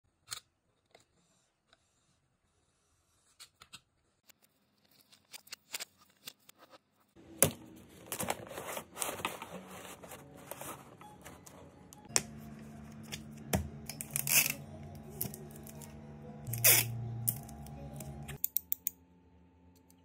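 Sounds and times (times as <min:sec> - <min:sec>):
paper sheets rustling and sliding: 0:07.8 - 0:11.8.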